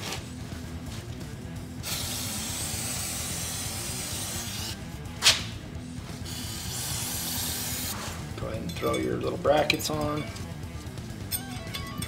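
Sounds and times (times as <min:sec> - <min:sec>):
background music: 0:00.0 - 0:12.0
aerosol spray hissing: 0:01.8 - 0:04.8, 0:06.2 - 0:08.2.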